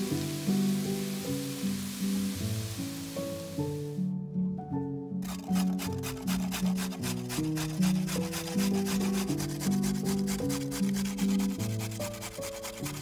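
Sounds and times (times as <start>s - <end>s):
background music: 0.0s - 13.0s
carrot grating on metal grater: 5.2s - 13.0s.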